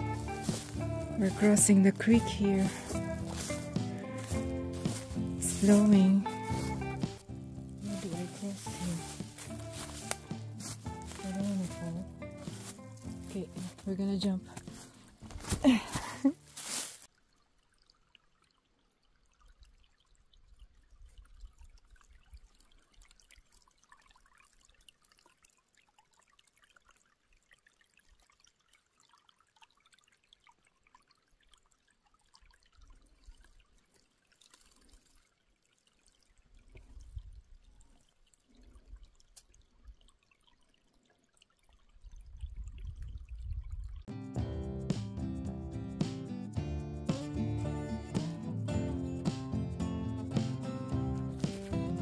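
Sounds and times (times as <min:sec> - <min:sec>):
water drips and splashes: 0:00.0 - 0:44.1, 0:50.5 - 0:52.0
creek trickling: 0:00.0 - 0:44.2, 0:46.5 - 0:52.0.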